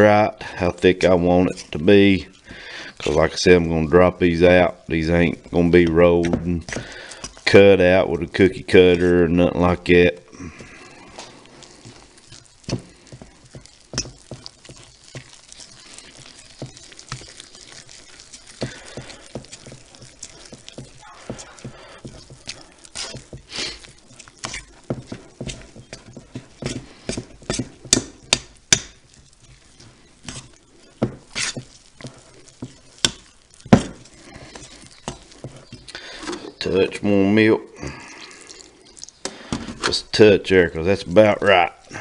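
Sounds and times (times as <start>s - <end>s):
spoon scraping batter: 0.0s - 42.0s.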